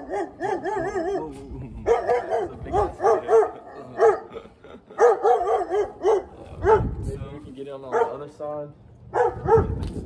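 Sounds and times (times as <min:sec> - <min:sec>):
dog barking: 0:00.0 - 0:04.4, 0:05.0 - 0:07.0, 0:07.9 - 0:08.3, 0:09.1 - 0:09.8.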